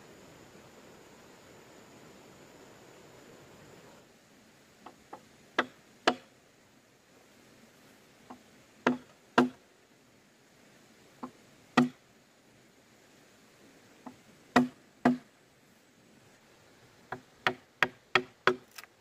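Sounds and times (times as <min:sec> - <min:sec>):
hand tool knocking on bamboo: 0:05.1 - 0:06.2, 0:08.8 - 0:09.6, 0:11.2 - 0:12.0, 0:14.1 - 0:15.2, 0:17.1 - 0:18.6.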